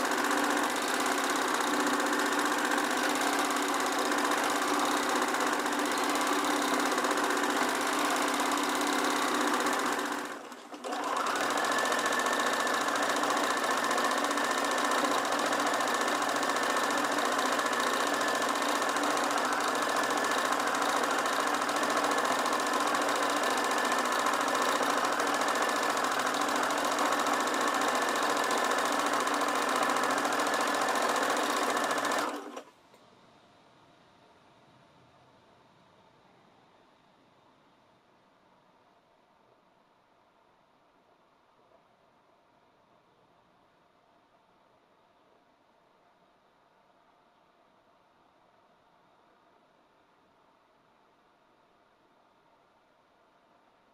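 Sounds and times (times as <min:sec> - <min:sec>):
sewing machine running: 0:00.0 - 0:32.7.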